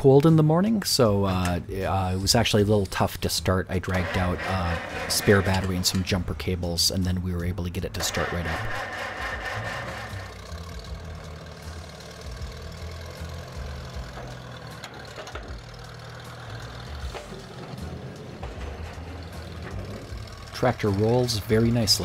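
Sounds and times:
tractor engine running slowly: 0:00.0 - 0:22.0.

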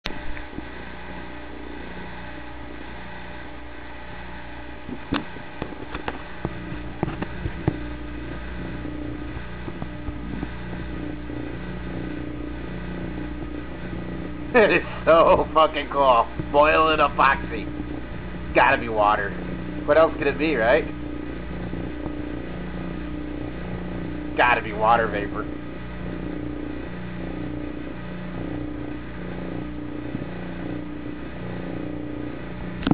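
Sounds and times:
vacuum pump humming: 0:00.0 - 0:32.9.

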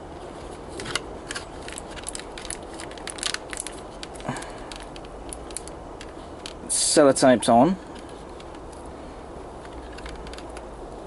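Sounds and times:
low steady hum: 0:00.0 - 0:11.0
plastic packaging crinkling: 0:00.7 - 0:06.7.

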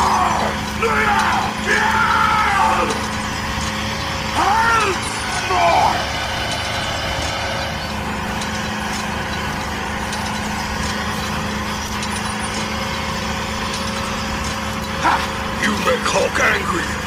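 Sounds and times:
tractor engine running: 0:00.0 - 0:17.0.

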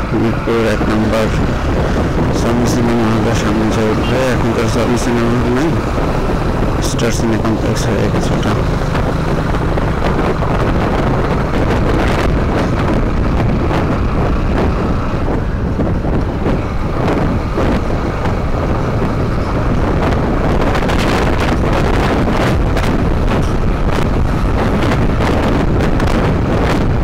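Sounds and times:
motorcycle engine running: 0:00.0 - 0:27.0
wind buffeting microphone: 0:00.0 - 0:27.0.

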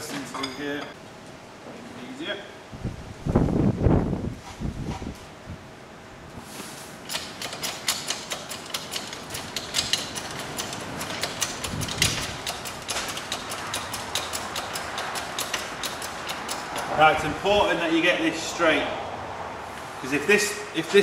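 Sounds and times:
hydraulic press pump clicking: 0:07.0 - 0:16.9.

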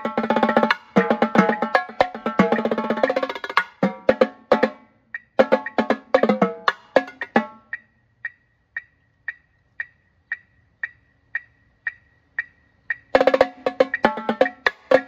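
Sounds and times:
marching tenor drums: 0:00.0 - 0:04.8, 0:05.4 - 0:07.6, 0:13.1 - 0:15.0
sharp metronome clicks: 0:00.0 - 0:15.0.

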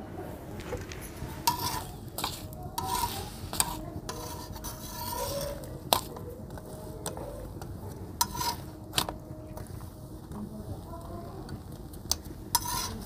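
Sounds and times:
faint frying sizzle: 0:00.0 - 0:13.0
metal spatula scraping an iron pan: 0:01.1 - 0:07.4, 0:08.2 - 0:09.2, 0:12.2 - 0:13.0.

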